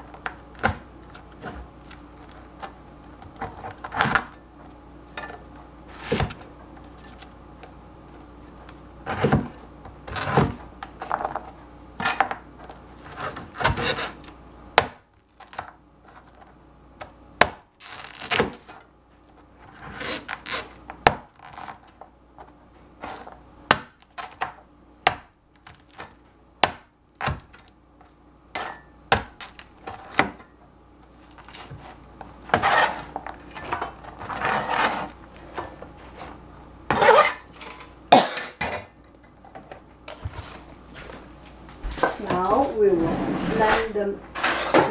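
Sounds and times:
scraping on cutting board: 0:13.0 - 0:14.2, 0:31.5 - 0:33.2, 0:34.2 - 0:35.2, 0:36.0 - 0:37.5, 0:42.0 - 0:44.9.

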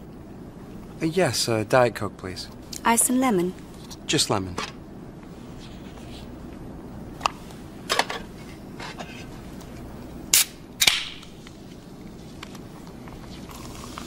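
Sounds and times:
fizz hissing: 0:13.4 - 0:14.0.

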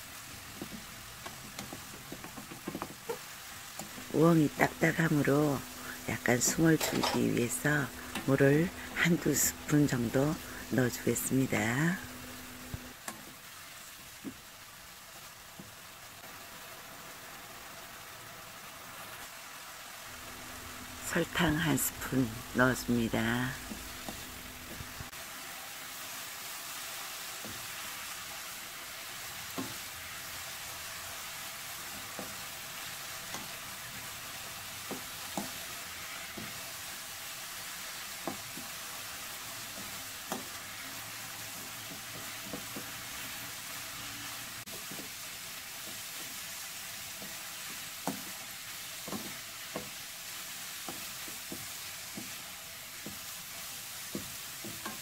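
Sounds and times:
vegetables sizzling in a wok: 0:00.0 - 0:55.0
spatula knocking and scraping pan: 0:00.5 - 0:03.2, 0:06.4 - 0:07.4, 0:34.8 - 0:36.6, 0:39.7 - 0:40.7, 0:41.4 - 0:43.4, 0:49.0 - 0:50.0, 0:54.0 - 0:55.0.

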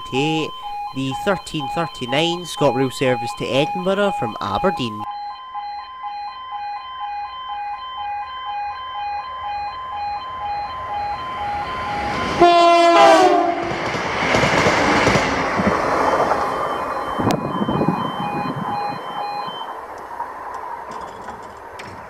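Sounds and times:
level crossing alarm two-tone: 0:00.0 - 0:13.3, 0:16.0 - 0:19.8
train rushing past: 0:10.8 - 0:22.0
train horn blast: 0:12.2 - 0:13.7
train wheels clattering on rails: 0:13.6 - 0:16.7, 0:19.9 - 0:22.0.

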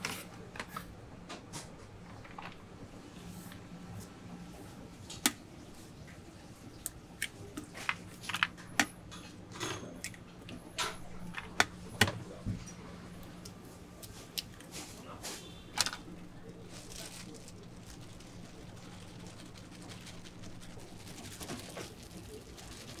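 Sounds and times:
steady low hum: 0:00.0 - 0:23.0
plastic bag handled: 0:15.7 - 0:23.0
plastic pitchers clicking: 0:15.8 - 0:23.0.

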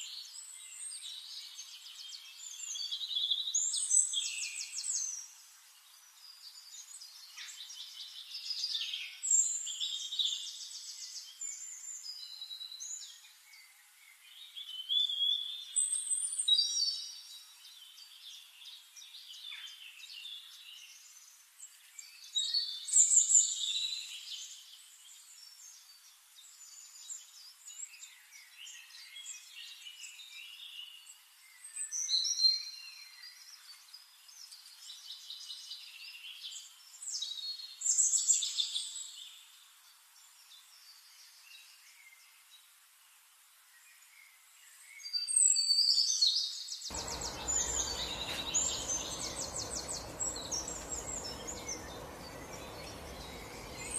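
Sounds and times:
birds chirping and whistling: 0:46.9 - 0:53.9.

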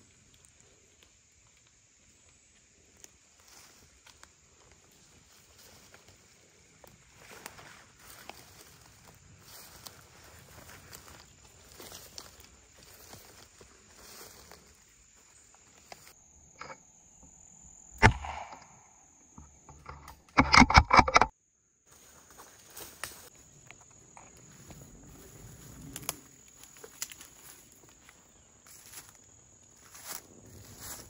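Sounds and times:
footsteps on dry leaves: 0:04.9 - 0:16.2, 0:24.5 - 0:29.2, 0:29.8 - 0:31.0
gunshot: 0:18.0 - 0:19.0.

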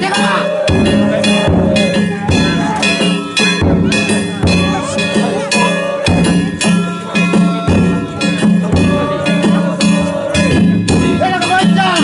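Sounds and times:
drum beats: 0:00.0 - 0:12.0
hand gongs ringing: 0:00.0 - 0:12.0.

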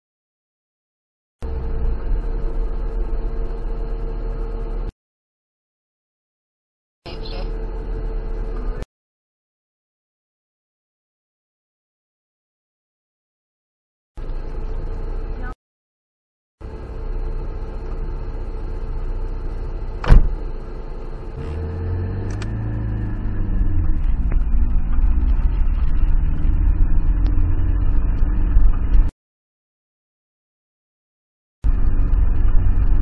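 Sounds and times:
car engine running: 0:01.4 - 0:04.9, 0:07.1 - 0:08.8, 0:14.2 - 0:15.6, 0:16.6 - 0:29.1, 0:31.7 - 0:33.0.

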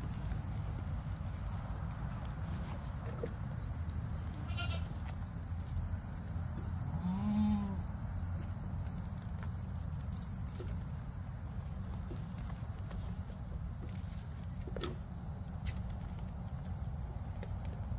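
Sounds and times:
low background noise: 0:00.0 - 0:17.9
goat bleating: 0:04.4 - 0:04.9.

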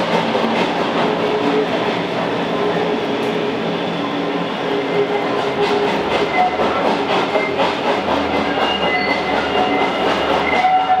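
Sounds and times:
train wheels clattering over joints: 0:05.0 - 0:11.0
wheel squeals: 0:06.2 - 0:07.6, 0:08.3 - 0:11.0.

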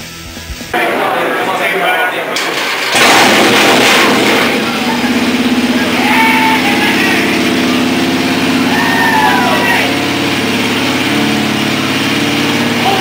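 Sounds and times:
motorcycle engine running: 0:03.0 - 0:13.0.

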